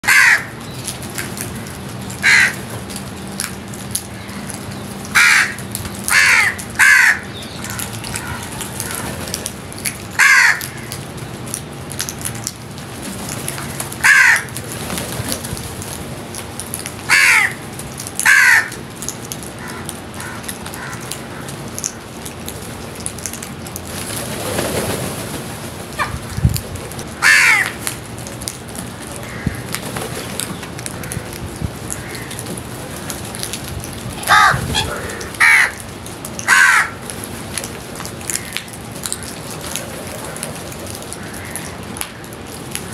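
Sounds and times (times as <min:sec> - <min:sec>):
crows cawing: 0:00.0 - 0:00.6, 0:02.2 - 0:02.7, 0:04.2 - 0:09.1, 0:10.2 - 0:11.0, 0:14.0 - 0:14.6, 0:17.1 - 0:17.6, 0:18.2 - 0:18.8, 0:19.6 - 0:21.6, 0:27.2 - 0:27.9, 0:29.2 - 0:29.8, 0:30.8 - 0:33.5, 0:34.2 - 0:37.1, 0:38.3 - 0:39.4, 0:41.0 - 0:42.3
steady background hiss: 0:00.2 - 0:42.9.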